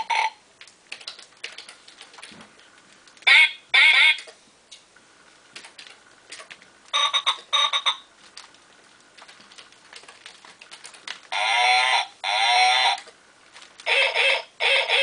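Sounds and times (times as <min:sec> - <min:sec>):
electronic animal calls: 0:00.0 - 0:00.4, 0:03.2 - 0:04.3, 0:11.3 - 0:13.1, 0:13.8 - 0:15.0
plastic mat clicks and crinkles: 0:00.6 - 0:03.3, 0:08.2 - 0:11.3, 0:13.0 - 0:13.9.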